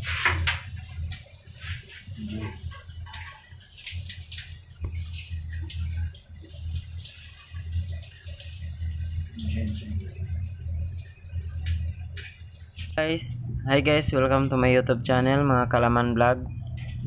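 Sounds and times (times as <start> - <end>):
water running and splashing: 0.0 - 13.4
water drips: 0.4 - 13.4
low hum: 7.6 - 17.0.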